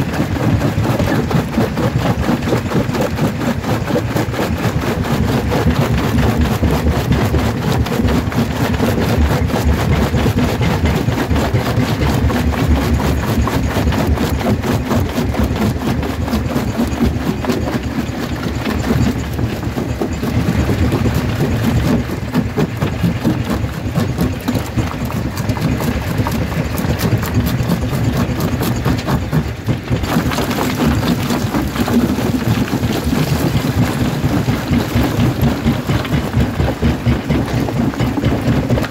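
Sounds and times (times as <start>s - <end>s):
jaw crusher crushing stone: 0.0s - 38.9s
rock falling into crusher: 29.0s - 38.9s.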